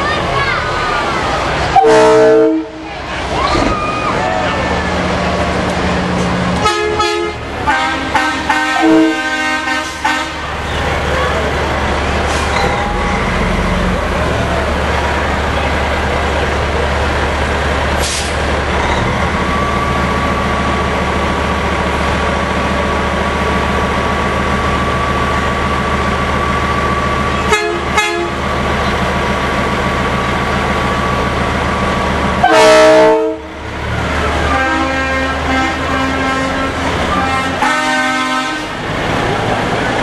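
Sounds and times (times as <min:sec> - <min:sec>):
truck diesel engine running: 0:00.0 - 0:40.0
truck air horn: 0:01.7 - 0:02.9, 0:06.6 - 0:10.4, 0:27.4 - 0:28.4, 0:32.4 - 0:33.6, 0:34.4 - 0:38.8.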